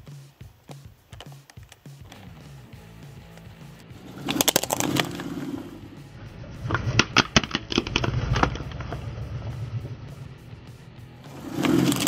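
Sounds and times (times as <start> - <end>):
tyre rumbling on asphalt: 3.9 - 12.0
plastic cracking under tyre: 4.3 - 5.2, 6.8 - 9.1.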